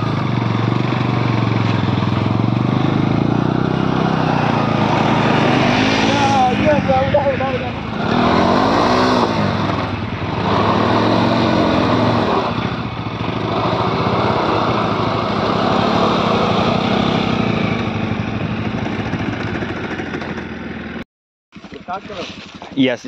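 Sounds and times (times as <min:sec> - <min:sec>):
motorcycle engine revving: 0:00.0 - 0:23.0.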